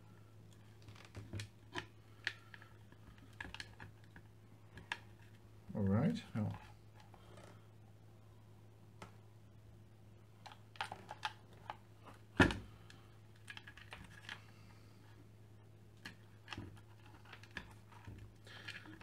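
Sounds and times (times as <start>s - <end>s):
faint steady hum: 0.0s - 19.0s
clicks and knocks of handling: 0.8s - 5.4s.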